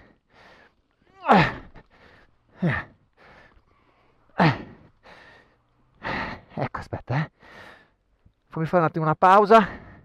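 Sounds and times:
man breathing hard: 0:00.0 - 0:06.6, 0:07.3 - 0:08.1
man groaning exhalations: 0:01.1 - 0:01.8.

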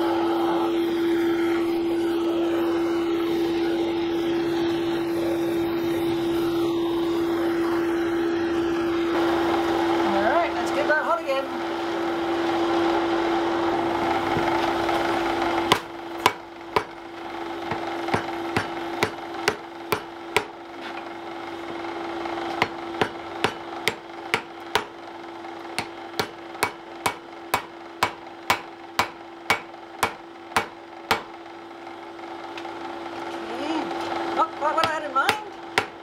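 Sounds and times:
constant hum: 0:00.0 - 0:09.2, 0:13.4 - 0:36.0
hammer striking hot iron: 0:15.6 - 0:17.0, 0:17.6 - 0:20.6, 0:22.5 - 0:25.0, 0:25.7 - 0:31.4, 0:34.8 - 0:36.0.

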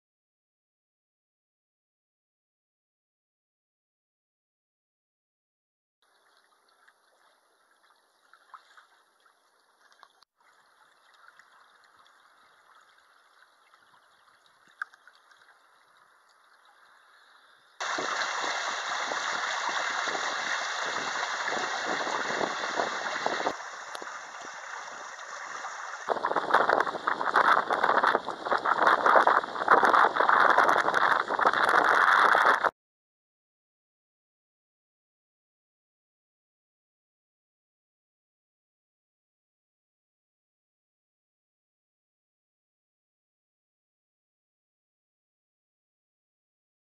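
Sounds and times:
water rushing past hull: 0:10.0 - 0:32.7.

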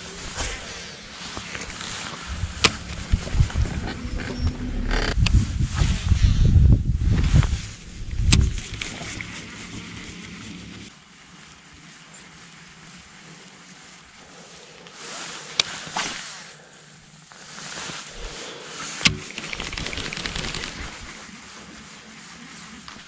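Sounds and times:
electric motor humming: 0:00.0 - 0:05.6
fishing line whirring off spool: 0:19.2 - 0:21.4.

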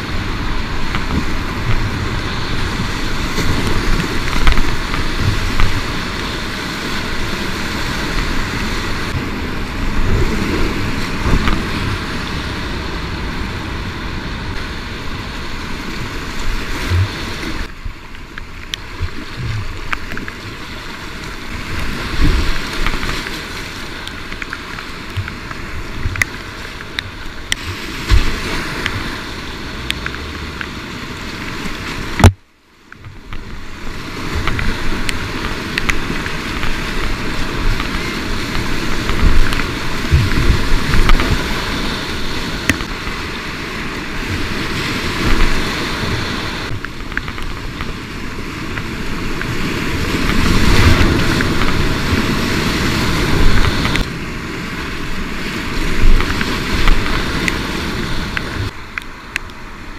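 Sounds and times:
rushing whitewater: 0:00.0 - 0:59.9
paddle strokes: 0:14.5 - 0:59.6.

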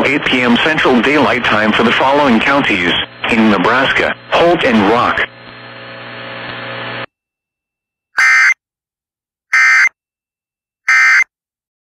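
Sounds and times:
broadcast hiss with low hum: 0:00.0 - 0:07.1
shrill digital tone screeches: 0:08.2 - 0:08.6, 0:09.5 - 0:09.9, 0:10.9 - 0:11.3.

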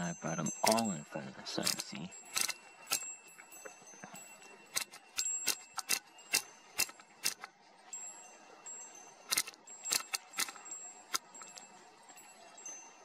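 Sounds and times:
camera control dial clicks: 0:02.4 - 0:02.6.

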